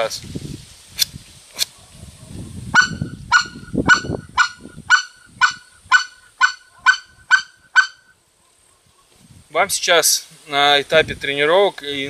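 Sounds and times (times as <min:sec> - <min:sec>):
goose call clucks: 0:02.8 - 0:08.1.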